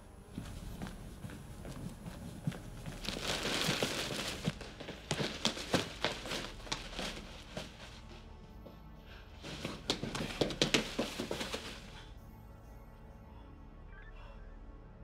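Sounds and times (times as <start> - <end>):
footsteps on hard path: 0.3 - 12.0.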